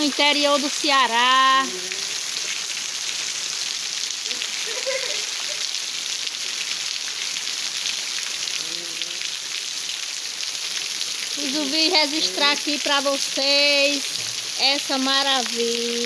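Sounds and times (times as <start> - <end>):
steady rain on trees and ground: 0.0 - 16.0.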